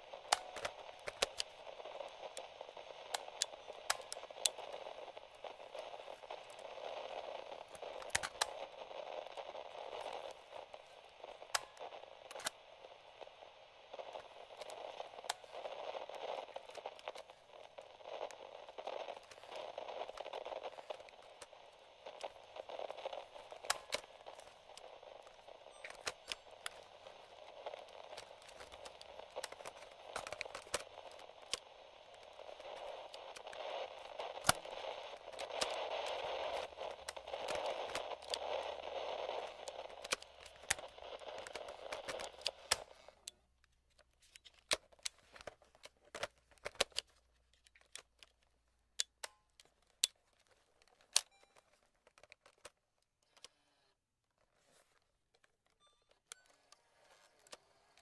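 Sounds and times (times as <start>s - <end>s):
radio static hiss: 0.0s - 43.4s
sharp clicks and crackles: 0.0s - 58.0s.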